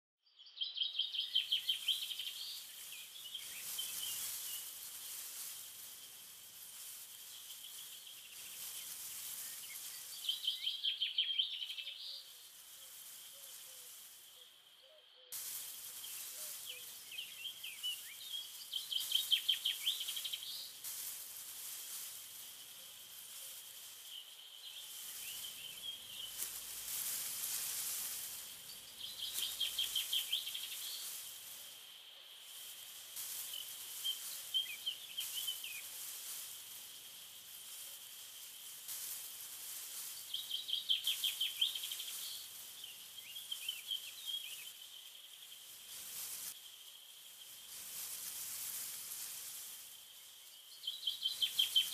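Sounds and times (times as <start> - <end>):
bird chirps: 0.2 - 5.6, 6.8 - 20.8, 22.6 - 36.0, 40.0 - 47.8, 50.1 - 51.9
soft hiss: 0.4 - 51.9
songbird trilling: 9.6 - 12.3, 28.7 - 31.1.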